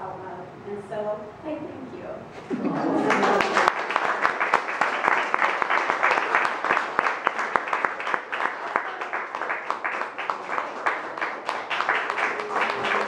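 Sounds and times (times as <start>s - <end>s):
audience applauding: 2.6s - 13.0s.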